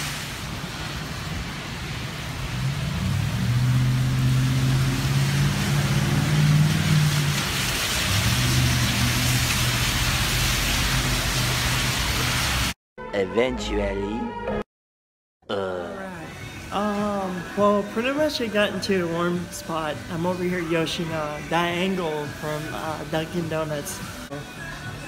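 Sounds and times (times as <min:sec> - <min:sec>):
heavy rain: 0:00.0 - 0:12.8, 0:16.3 - 0:24.3
tyres spraying water: 0:00.0 - 0:12.8, 0:16.3 - 0:24.4
car engines humming: 0:00.7 - 0:12.5.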